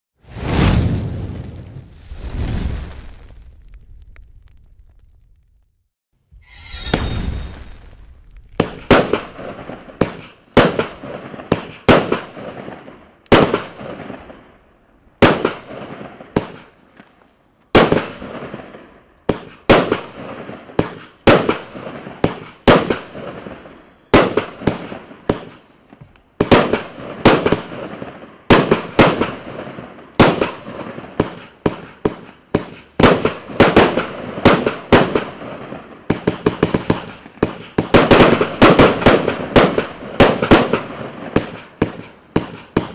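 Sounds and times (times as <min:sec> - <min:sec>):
firework cake bangs: 0:07.0 - 0:12.4, 0:36.1 - 0:42.9.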